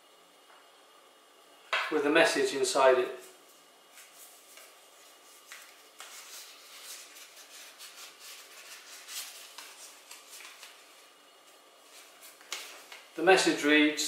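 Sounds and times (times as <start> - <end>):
paper crinkling and rustling: 3.9 - 11.1, 11.8 - 13.2.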